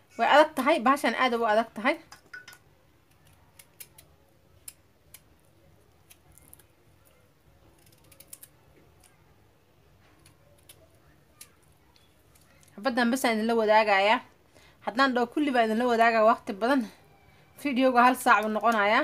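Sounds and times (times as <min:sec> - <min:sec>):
knife peeling vegetable skin: 0:03.0 - 0:09.3, 0:10.1 - 0:12.8.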